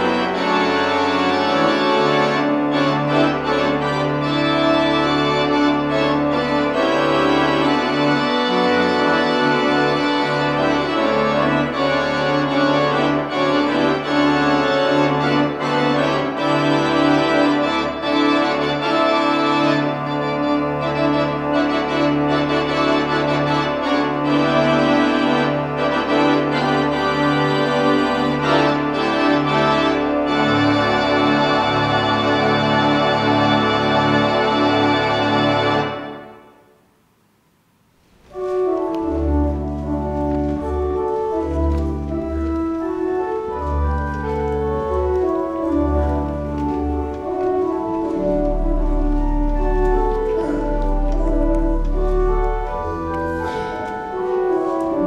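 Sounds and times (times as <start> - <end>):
organ playing slow chords: 0.0 - 36.7, 38.3 - 55.0.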